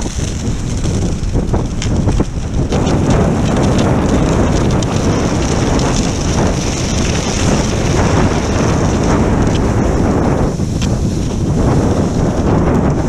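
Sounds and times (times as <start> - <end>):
skis sliding over snow: 0.0 - 13.0
wind buffeting microphone: 0.0 - 13.0.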